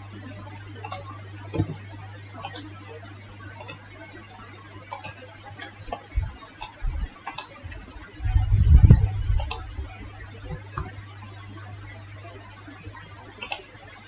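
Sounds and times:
steady low hum: 0:00.0 - 0:14.0
low rumbling noise: 0:06.1 - 0:11.0
mouse and keyboard clicks: 0:13.4 - 0:13.7.

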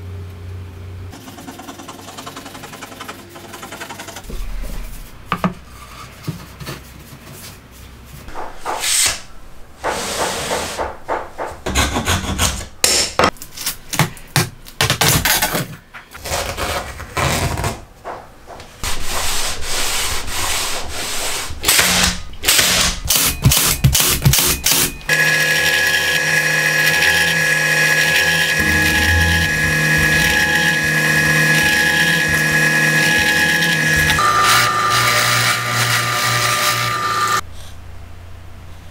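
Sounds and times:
drill press whining: 0:25.1 - 0:37.4.

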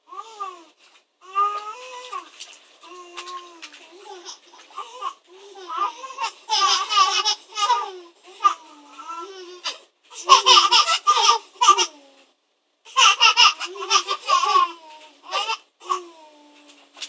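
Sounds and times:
baby laughing: 0:03.0 - 0:12.1, 0:12.9 - 0:16.3.

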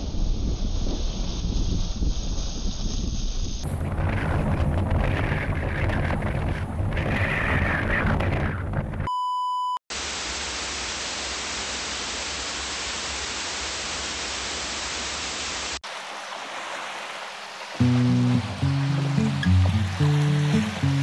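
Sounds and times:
electronic test-tone beep: 0:09.1 - 0:09.8
white-noise static: 0:09.9 - 0:15.8.

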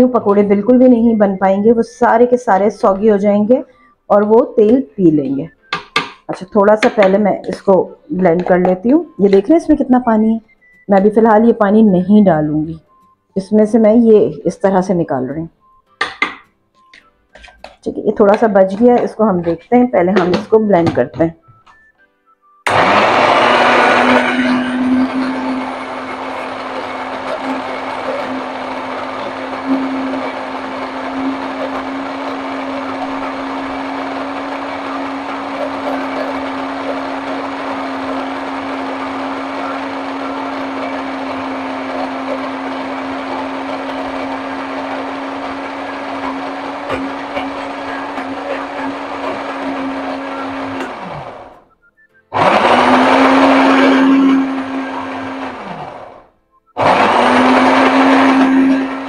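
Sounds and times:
blender motor grinding: 0:22.7 - 0:51.7, 0:52.3 - 0:59.0.

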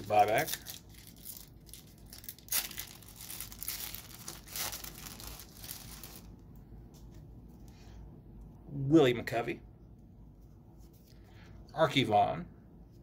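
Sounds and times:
foil wrapper tearing and crinkling: 0:00.0 - 0:06.3.

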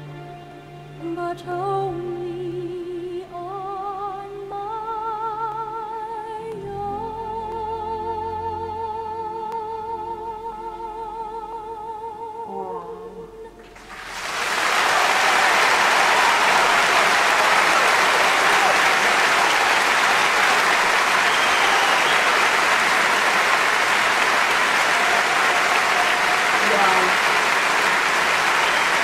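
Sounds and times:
woman singing with vibrato: 0:01.0 - 0:13.7
audience applause: 0:13.6 - 0:29.0.

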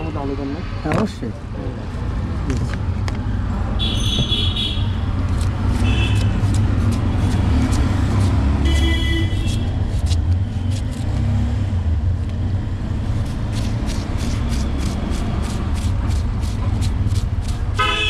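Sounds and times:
road traffic rumble: 0:00.0 - 0:18.0
knife chopping on wooden board: 0:05.3 - 0:10.1.

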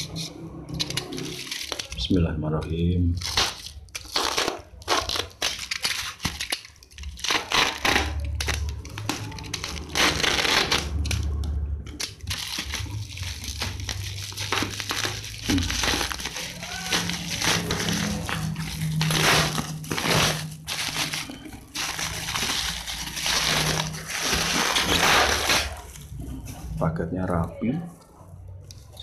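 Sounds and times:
plastic wrapping crinkling: 0:00.0 - 0:29.0.

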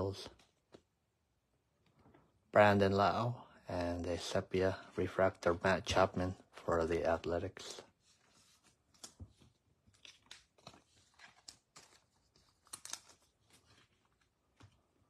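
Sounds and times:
trading cards crinkling and clicking: 0:08.6 - 0:15.0
foil wrapper crinkling: 0:09.9 - 0:14.7.

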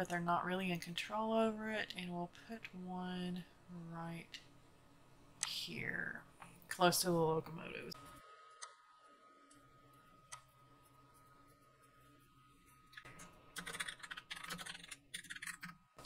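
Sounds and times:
typing on computer keyboard: 0:13.6 - 0:15.8.

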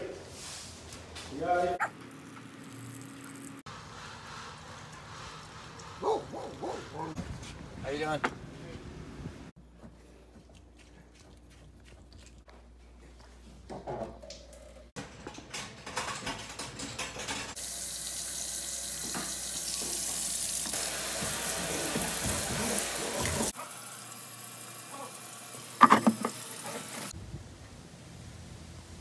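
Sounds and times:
water spraying into steel sink: 0:17.6 - 0:27.1
faucet handling clicks and knocks: 0:25.8 - 0:26.4.

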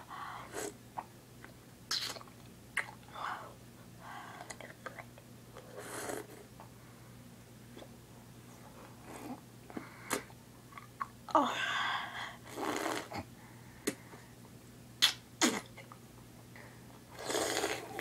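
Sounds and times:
wet mouth clicks and smacks: 0:15.0 - 0:16.0.

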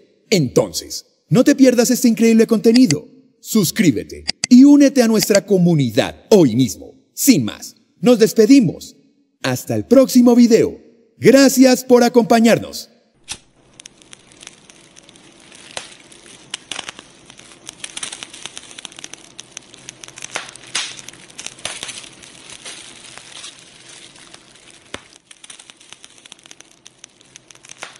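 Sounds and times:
fire crackling: 0:01.8 - 0:05.6, 0:13.2 - 0:27.9.

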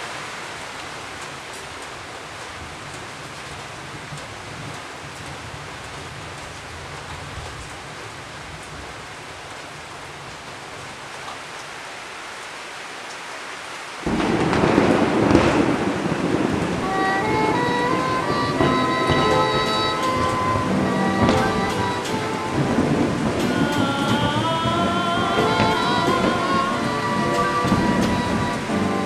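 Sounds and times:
heavy rain: 0:00.0 - 0:29.0
low hiss: 0:08.7 - 0:29.0
thunder rumbling: 0:14.1 - 0:29.0
music: 0:16.8 - 0:29.0.

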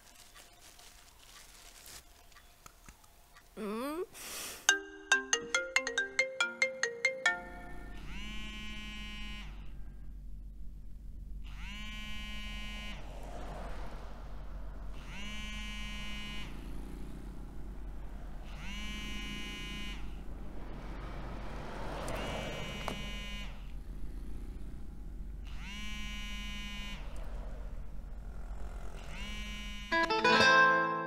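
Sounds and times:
phone ringtone plucked notes: 0:04.7 - 0:08.1, 0:29.9 - 0:31.0
phone ringing: 0:04.7 - 0:09.3
car cabin hum: 0:12.1 - 0:29.8.

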